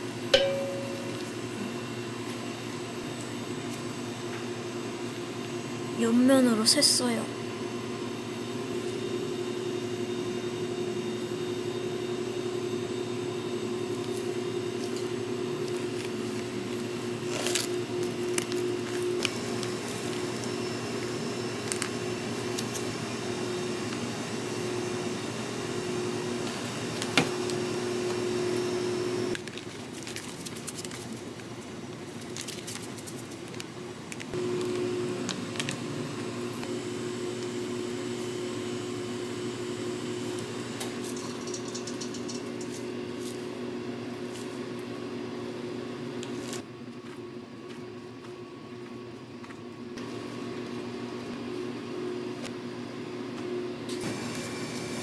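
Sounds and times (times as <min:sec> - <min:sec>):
machine hum: 0:00.0 - 0:29.4, 0:33.8 - 0:47.2.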